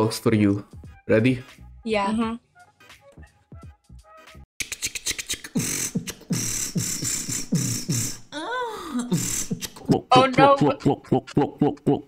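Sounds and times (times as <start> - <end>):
vocal snare and hi-hat: 4.6 - 8.3, 9.0 - 12.0.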